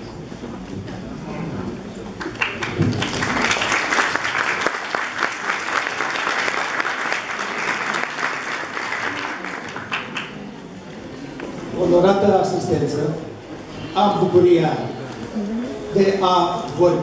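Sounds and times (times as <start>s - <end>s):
audience applauding: 2.2s - 10.5s.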